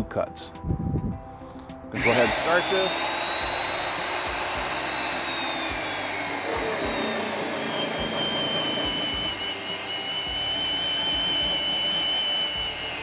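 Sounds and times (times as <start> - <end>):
magnetic drill cutting steel: 2.0 - 13.0.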